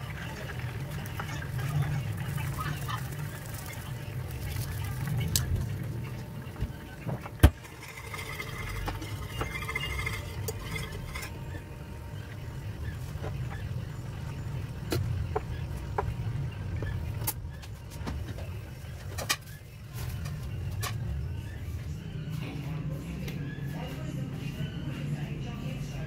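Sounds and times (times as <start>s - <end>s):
steady low hum: 0.0s - 26.0s
gravy simmering with pops: 6.6s - 17.6s.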